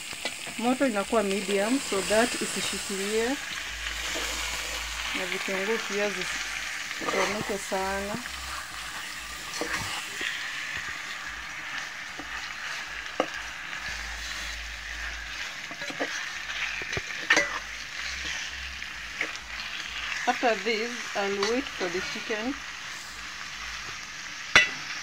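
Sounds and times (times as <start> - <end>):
chicken sizzling in oil: 0.0 - 25.0
metal spoon scraping and clinking: 7.0 - 7.5, 15.7 - 18.4.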